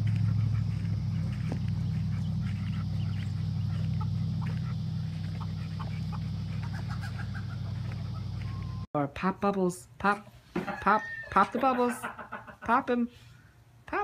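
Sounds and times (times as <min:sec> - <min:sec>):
bird calls: 0:00.0 - 0:08.9
steady low hum: 0:00.0 - 0:08.9.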